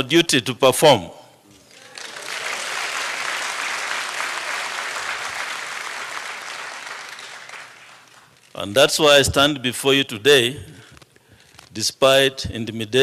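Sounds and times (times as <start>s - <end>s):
audience applauding: 1.6s - 8.5s.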